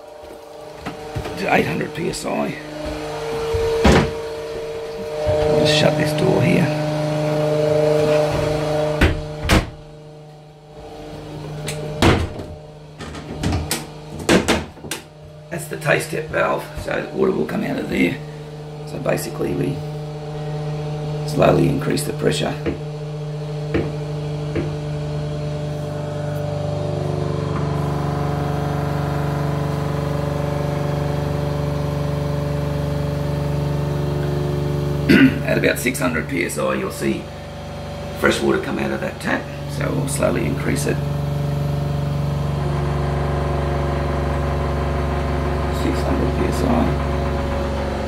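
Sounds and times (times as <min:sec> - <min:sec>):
pump humming: 0:00.0 - 0:48.0
door shutting with knocks: 0:03.4 - 0:04.4, 0:08.1 - 0:10.0, 0:11.5 - 0:15.1
loud thump: 0:03.4 - 0:04.4, 0:08.2 - 0:09.9, 0:11.9 - 0:12.6.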